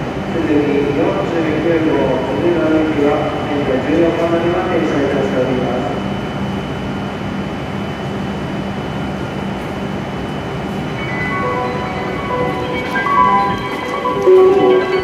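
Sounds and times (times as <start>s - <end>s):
train humming with high whine: 0.0s - 15.0s
chiming melody: 10.9s - 15.0s.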